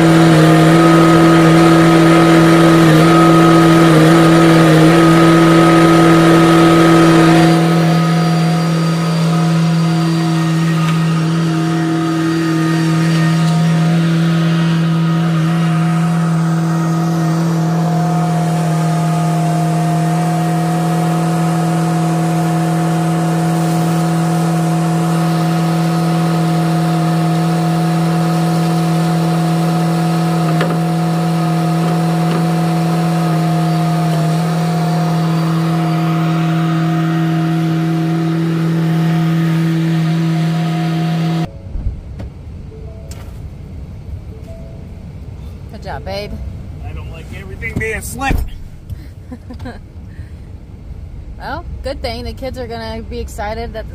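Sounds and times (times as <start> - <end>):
loader engine droning: 0.0 - 53.9.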